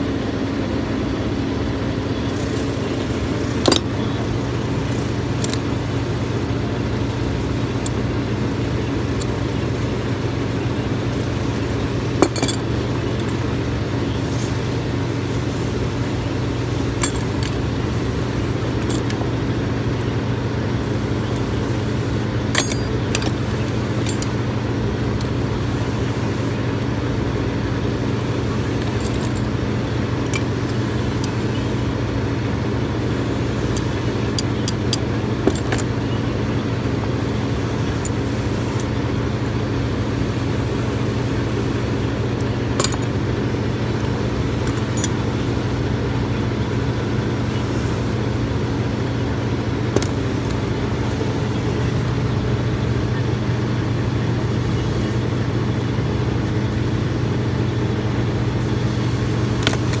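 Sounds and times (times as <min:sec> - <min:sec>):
machine hum: 0:00.0 - 1:00.0
metal tools clinking on workbench: 0:03.6 - 0:03.9, 0:05.2 - 0:05.7, 0:12.0 - 0:13.5, 0:16.8 - 0:17.7, 0:18.7 - 0:19.2, 0:22.5 - 0:24.4, 0:28.7 - 0:29.5, 0:33.7 - 0:36.1, 0:42.8 - 0:43.2, 0:44.6 - 0:45.3.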